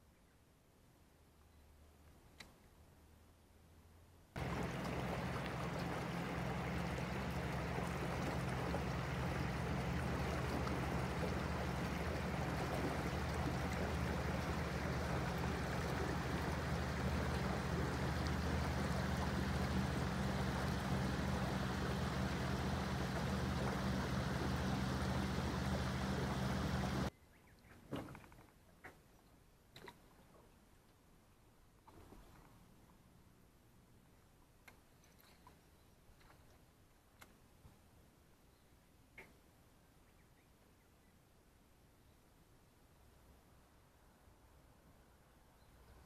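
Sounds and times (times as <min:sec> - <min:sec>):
low motor hum: 0:04.4 - 0:27.1
water rushing: 0:04.4 - 0:27.1.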